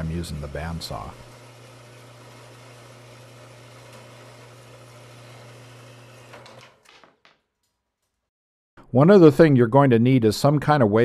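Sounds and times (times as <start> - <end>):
bandsaw motor hum: 0.0 - 7.3.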